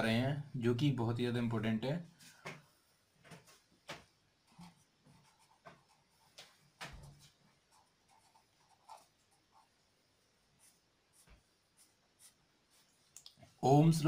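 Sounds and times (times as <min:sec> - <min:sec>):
pen scratching on paper: 0:04.5 - 0:06.4, 0:07.2 - 0:09.7, 0:10.6 - 0:12.9.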